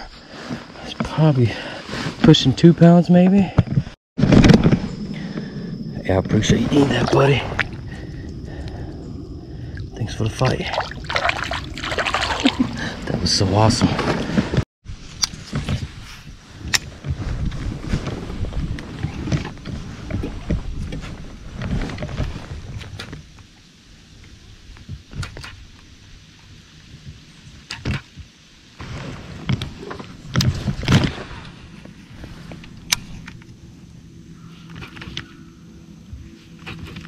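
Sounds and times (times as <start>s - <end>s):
low rumble: 4.2s - 13.2s.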